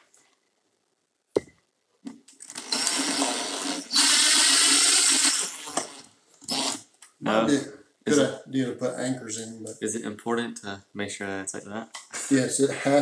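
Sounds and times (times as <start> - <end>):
cordless drill driving screw: 2.5 - 6.8.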